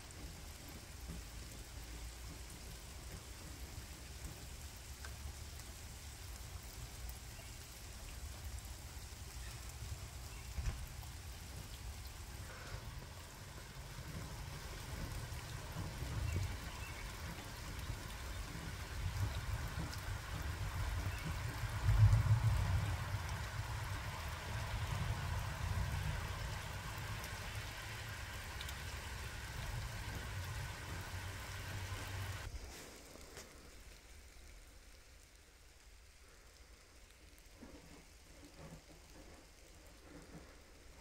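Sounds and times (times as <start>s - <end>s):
rain on wet ground and leaves: 0.0s - 41.0s.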